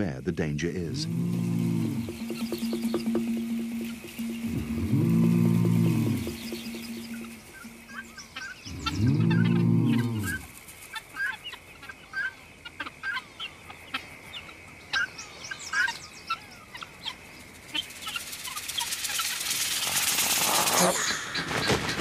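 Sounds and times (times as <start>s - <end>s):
steady high-pitched tone: 0.8s - 10.5s
low music note: 0.9s - 10.4s
guinea fowl alarm calls: 0.9s - 19.5s.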